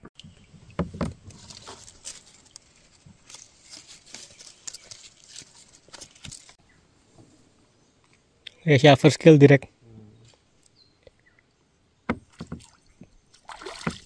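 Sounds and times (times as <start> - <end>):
leaves and twigs rustling: 0.2 - 8.2.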